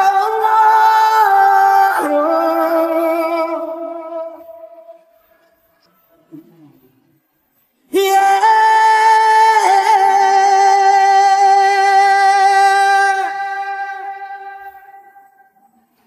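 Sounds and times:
man singing a long note: 0.0s - 5.0s, 7.9s - 15.6s.

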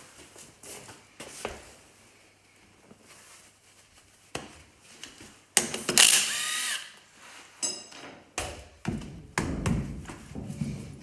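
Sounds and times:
impact wrench spinning: 5.9s - 7.0s.

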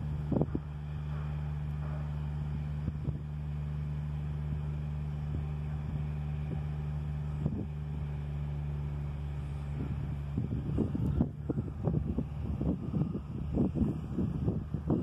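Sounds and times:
wind gusts on microphone: 0.0s - 1.0s, 9.4s - 15.0s
vehicle engine idling: 0.0s - 15.0s.

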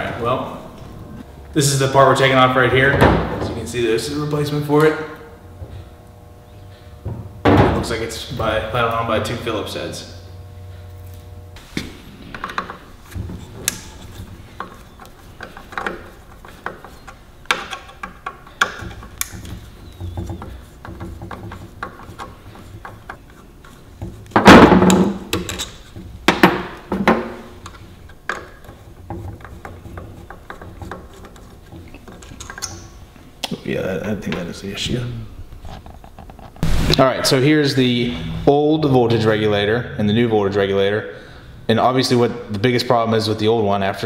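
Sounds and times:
heavy thunks on workbench: 2.9s - 3.6s, 7.0s - 7.9s, 24.4s - 25.2s
tools clicking and knocking: 12.3s - 23.4s, 24.0s - 33.0s.

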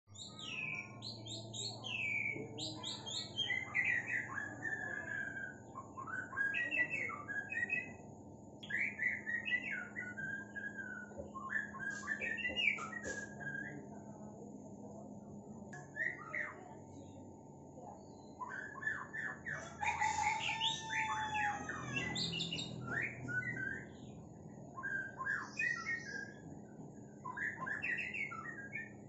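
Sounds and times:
bird singing whistled phrases: 1.6s - 8.0s, 8.6s - 13.8s, 18.2s - 24.1s, 24.8s - 26.4s, 27.2s - 29.0s.

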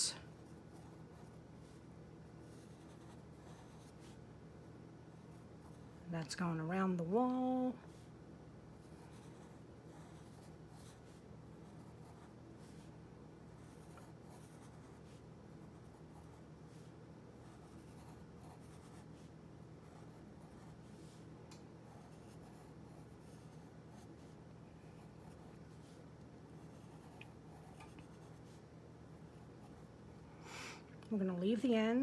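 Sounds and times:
steady low hum: 0.0s - 32.0s
pencil scratching on paper: 2.4s - 4.2s, 8.8s - 12.9s, 13.6s - 21.2s, 21.8s - 28.6s.

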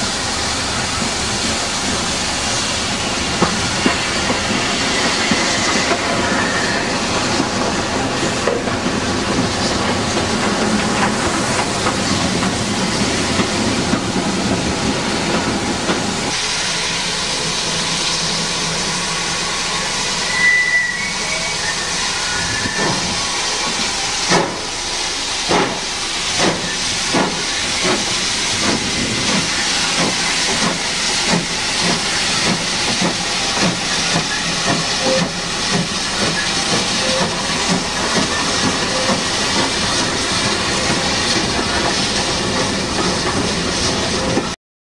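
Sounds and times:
locomotive chuffing: 0.0s - 44.6s
steam locomotive hissing: 0.0s - 44.6s
high steam whistle: 3.6s - 7.4s, 16.3s - 25.2s, 29.3s - 42.6s.

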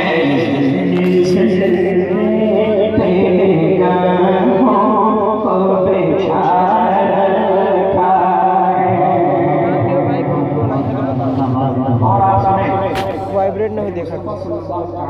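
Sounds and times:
man singing devotional chant: 0.0s - 15.0s.

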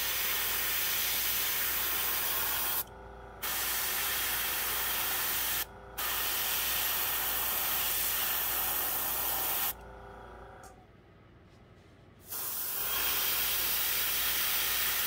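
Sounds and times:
airbrush spraying hiss: 0.0s - 2.8s, 3.4s - 9.8s, 12.2s - 15.0s.

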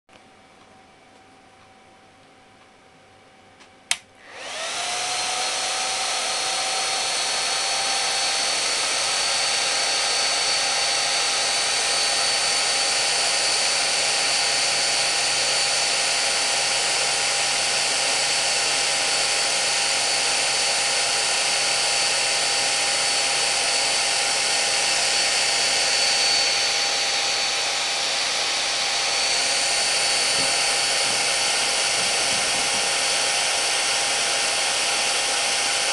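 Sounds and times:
switch click: 3.6s - 4.1s.

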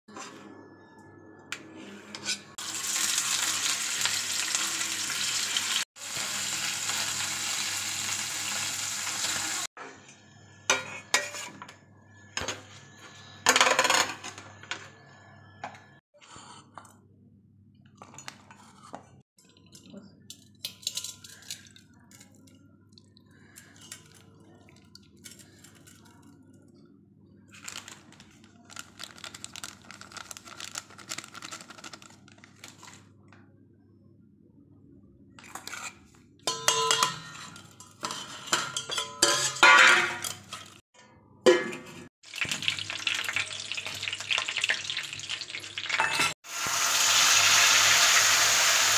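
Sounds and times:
utensils clinking against pots: 9.1s - 16.0s, 18.0s - 22.6s, 35.4s - 45.0s, 45.8s - 46.4s.

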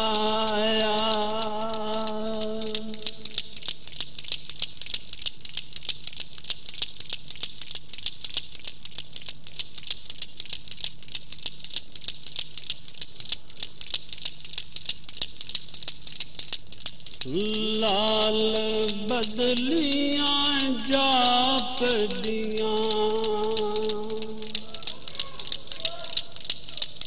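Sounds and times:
person singing recitation: 0.0s - 3.4s, 17.2s - 27.0s
low steady hum: 0.0s - 4.9s, 16.6s - 25.7s.

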